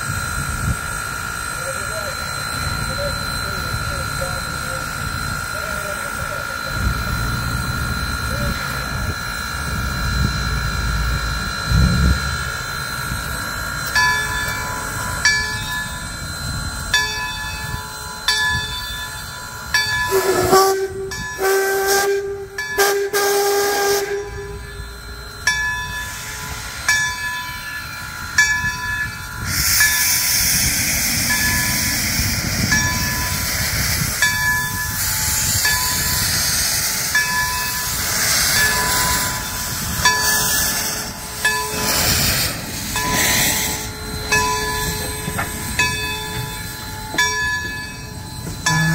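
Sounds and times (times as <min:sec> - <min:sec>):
locomotive bell ringing: 0:00.0 - 0:48.9
loud steam hiss: 0:00.8 - 0:48.9
steam whistle blast: 0:20.1 - 0:25.0.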